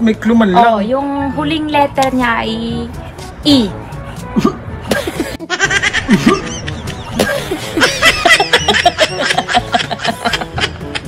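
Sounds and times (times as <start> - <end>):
woman and man laughing: 4.9 - 11.0.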